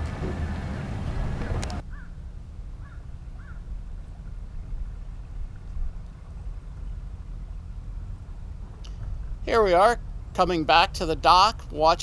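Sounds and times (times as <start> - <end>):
boat engines rumbling: 0.0 - 12.0
bird calling: 1.4 - 2.2, 2.8 - 3.7.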